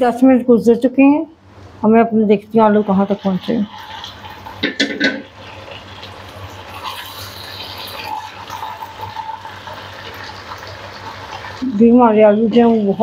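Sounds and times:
food simmering and sizzling: 0:02.4 - 0:13.0
spatula stirring: 0:02.7 - 0:13.0.

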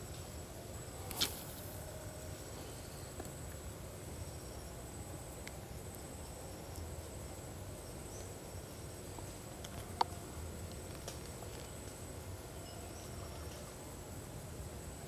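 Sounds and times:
high-pitched insect call: 0:00.0 - 0:15.0.

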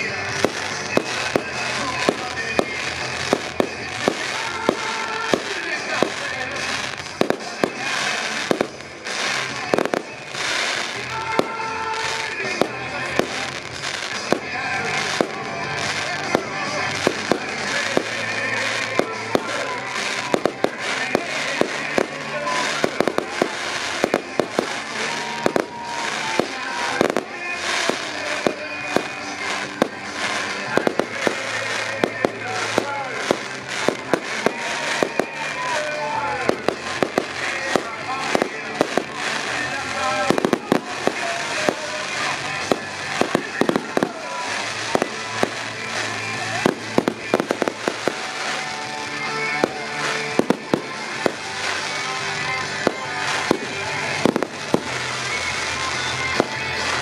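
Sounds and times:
crackling hiss of fireworks: 0:00.0 - 0:57.0
fireworks bangs: 0:00.0 - 0:57.0.

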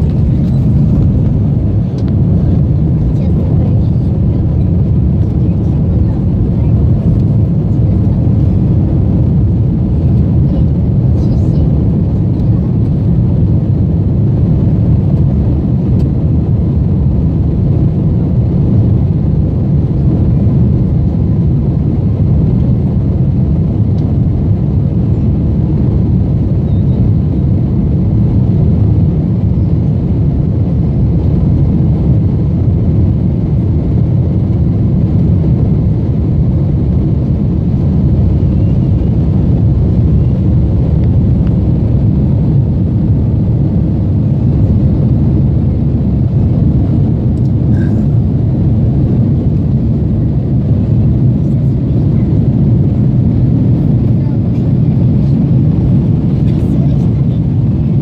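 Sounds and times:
airliner cabin engine roar: 0:00.0 - 0:58.0.

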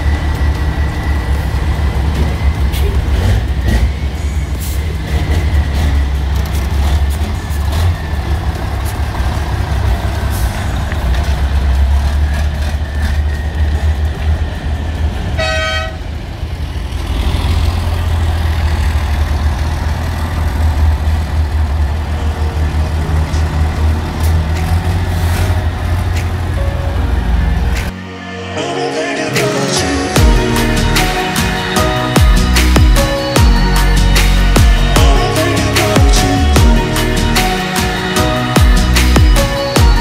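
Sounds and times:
diesel truck engines droning: 0:00.0 - 0:40.0
short horn toot: 0:15.4 - 0:16.0.

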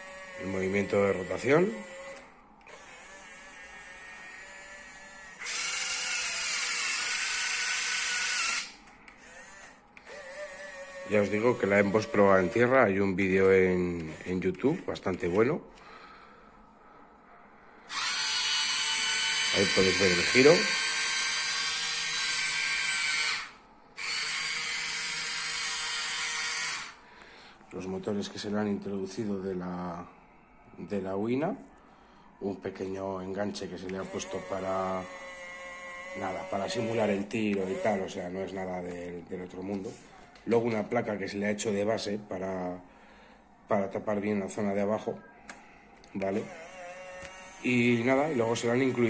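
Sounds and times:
small electric motors whining: 0:00.0 - 0:12.8, 0:17.9 - 0:27.0, 0:33.6 - 0:38.7, 0:46.2 - 0:49.0.

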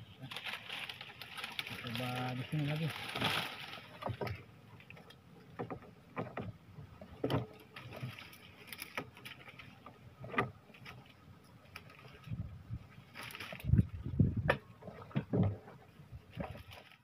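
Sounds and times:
leafy branches rustling: 0:00.0 - 0:05.2, 0:07.0 - 0:15.2, 0:15.8 - 0:17.0
knocks on wooden boat: 0:14.4 - 0:15.6.

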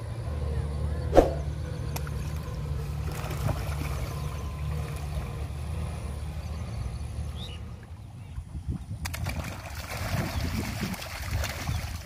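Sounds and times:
steady low rumble: 0:00.0 - 0:09.6
fish splashing at surface: 0:09.0 - 0:12.0.

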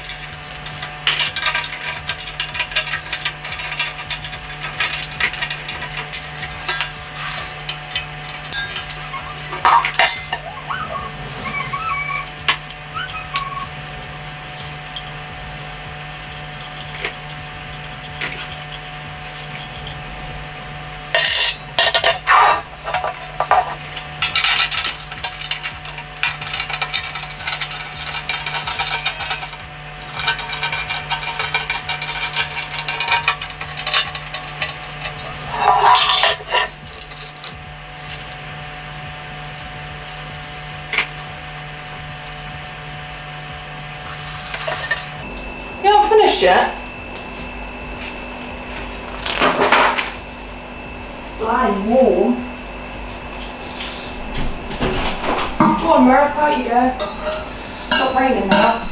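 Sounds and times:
metal parts clinking and scraping: 0:00.0 - 0:10.5, 0:14.2 - 0:20.1, 0:21.1 - 0:38.3, 0:44.1 - 0:45.2.

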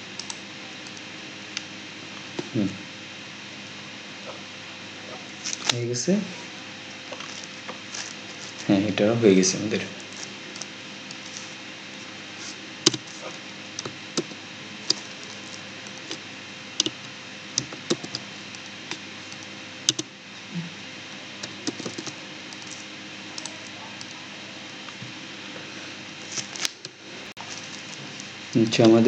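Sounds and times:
keyboard keystrokes: 0:12.9 - 0:13.1, 0:17.6 - 0:18.2, 0:19.3 - 0:20.1, 0:21.4 - 0:22.7.

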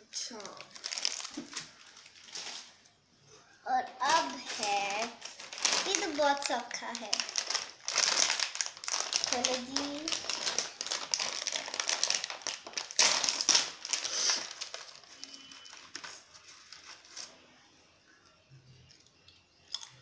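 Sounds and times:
plastic chip packet crinkling: 0:00.3 - 0:02.8, 0:03.8 - 0:17.4.

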